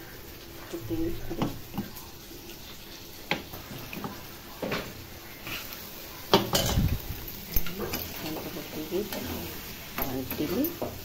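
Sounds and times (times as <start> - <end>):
metal pot clanking on stove: 6.3 - 11.0.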